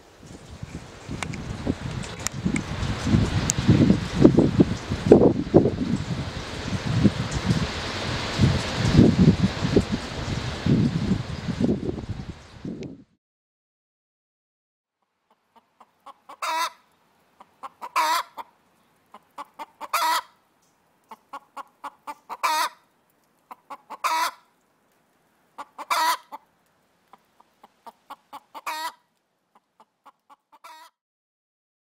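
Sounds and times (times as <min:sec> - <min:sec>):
hen clucking and cackling: 0:15.3 - 0:20.4, 0:21.0 - 0:22.8, 0:23.4 - 0:24.5, 0:25.6 - 0:26.5, 0:27.1 - 0:31.0.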